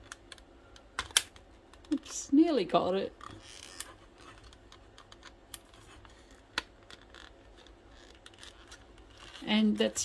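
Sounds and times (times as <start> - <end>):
screwdriver clicking and scraping plastic: 3.2 - 9.9.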